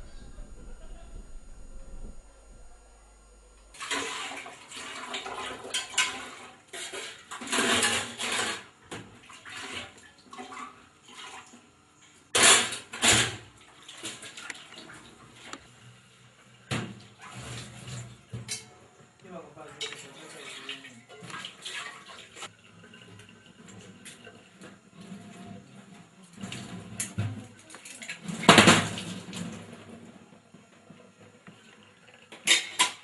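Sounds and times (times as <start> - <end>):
water splashing in sink: 20.0 - 24.2.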